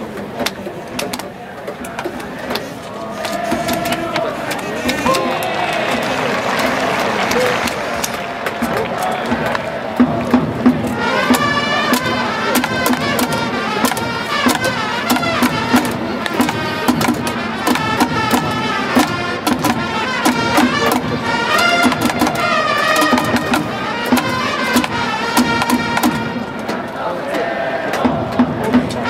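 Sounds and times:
drums and clappers beat: 0:04.8 - 0:29.0
trumpet fight song: 0:10.9 - 0:26.8.

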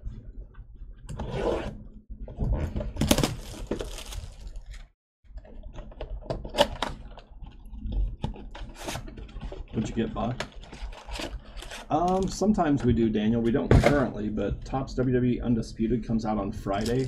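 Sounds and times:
trading cards and foil packs rustling: 0:03.0 - 0:04.9, 0:08.4 - 0:12.6, 0:16.7 - 0:17.0.

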